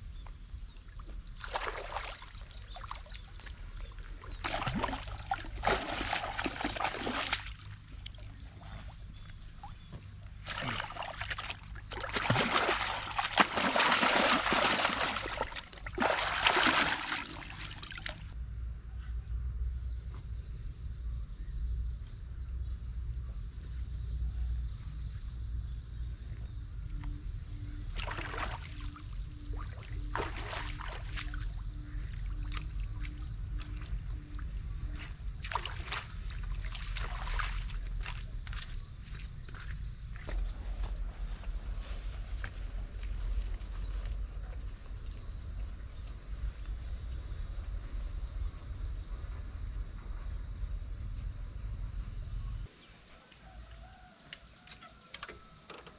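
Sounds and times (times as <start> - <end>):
water splashing: 4.2 - 7.6, 10.4 - 18.3, 29.5 - 31.6, 35.4 - 38.2.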